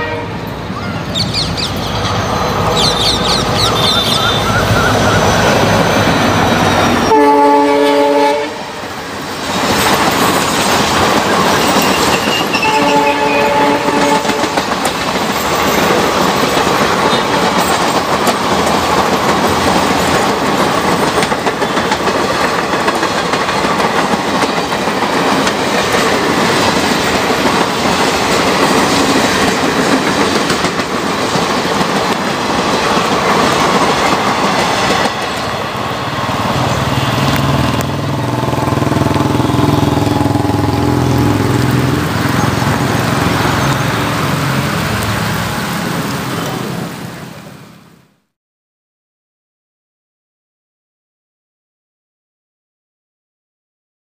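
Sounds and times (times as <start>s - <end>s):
train horn: 0.0s - 0.6s, 7.0s - 9.0s, 11.8s - 14.7s
diesel locomotive engine: 0.0s - 48.1s
train wheels clattering over rail joints: 9.3s - 13.0s, 13.9s - 35.5s.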